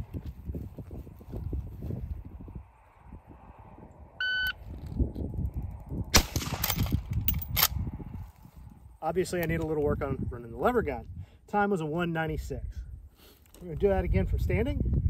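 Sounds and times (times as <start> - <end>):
electronic timer beep: 4.2 - 4.6
rifle shot: 6.1 - 7.8.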